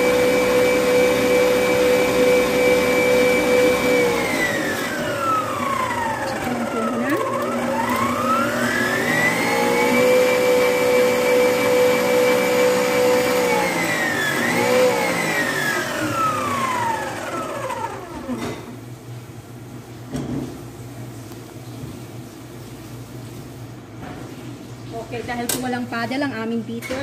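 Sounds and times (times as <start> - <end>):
stand mixer motor whining: 0.0 - 18.5.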